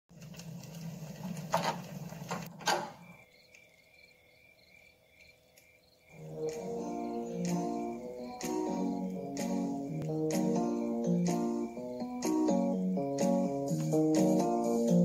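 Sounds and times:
fire pops: 0.1s - 3.2s
fireplace crackling: 0.1s - 15.0s
crickets chirping: 2.5s - 13.8s
music: 6.2s - 15.0s.

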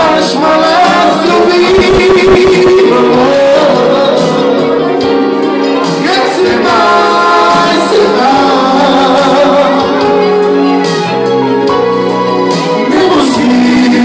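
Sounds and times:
electric keyboard: 0.0s - 14.0s
person singing through microphone: 0.0s - 14.0s.

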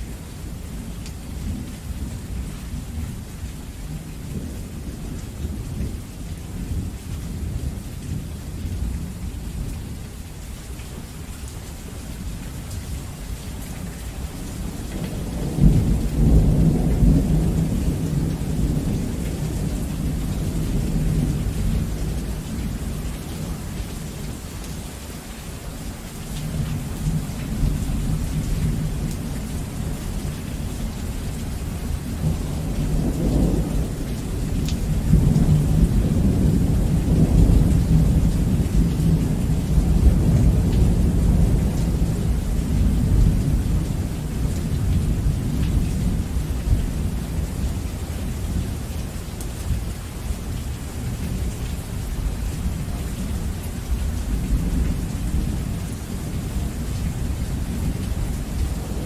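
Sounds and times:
heavy rain: 0.0s - 59.0s
rolling thunder: 14.9s - 23.1s, 32.1s - 47.7s.

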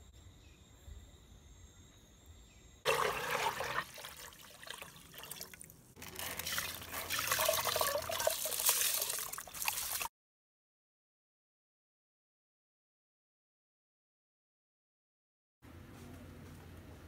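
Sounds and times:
rice grains streaming into water: 2.9s - 10.1s
water pouring into metal pot: 2.9s - 10.1s.

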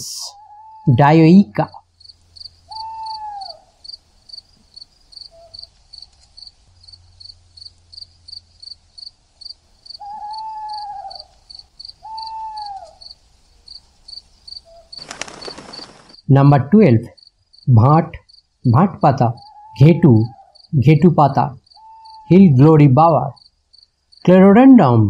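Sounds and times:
falling hooting call: 0.0s - 1.8s, 2.5s - 3.8s, 5.3s - 5.7s, 10.0s - 13.2s, 19.3s - 20.6s, 21.7s - 22.6s
cricket chirping: 0.0s - 16.3s, 16.9s - 24.6s.

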